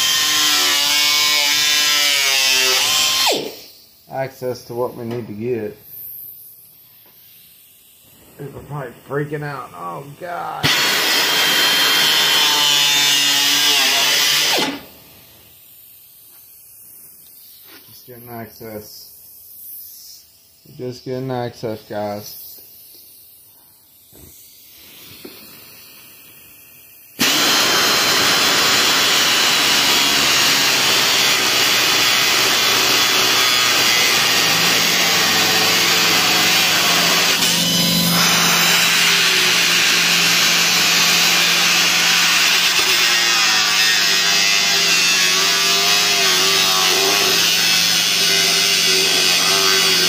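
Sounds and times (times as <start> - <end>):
pneumatic cutoff tool whining: 0.0 - 3.9, 8.2 - 15.0, 27.2 - 50.0.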